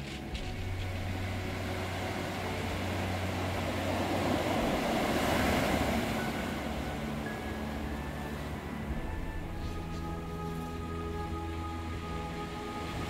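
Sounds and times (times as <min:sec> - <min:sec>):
surf washing up pebble beach: 0:00.0 - 0:09.3.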